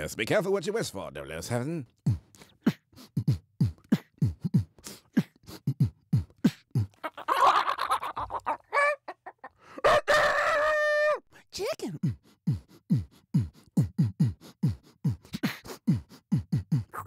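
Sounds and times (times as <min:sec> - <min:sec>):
man beatboxing: 0:01.4 - 0:07.1, 0:11.6 - 0:17.0
hissing scratchy beatbox sounds: 0:02.0 - 0:08.2, 0:12.0 - 0:17.0
held buzzy vocal tone: 0:11.6 - 0:17.0.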